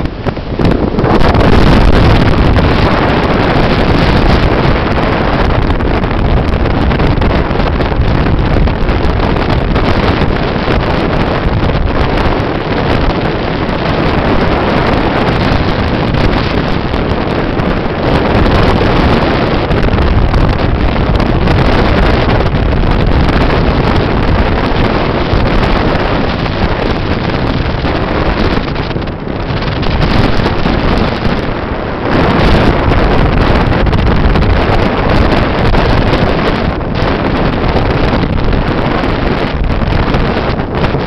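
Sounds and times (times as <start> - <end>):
bow wave and spray rushing: 0.0 - 41.0
wind buffeting microphone: 0.0 - 41.0.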